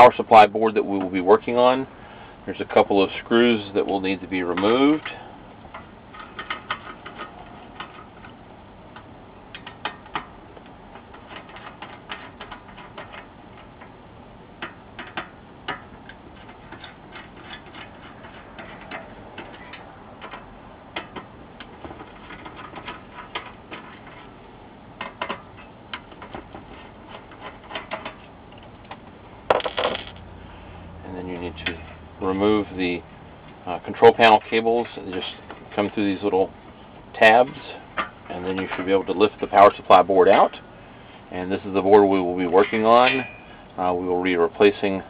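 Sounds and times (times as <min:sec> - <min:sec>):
metal clatter: 0:25.0 - 0:30.2.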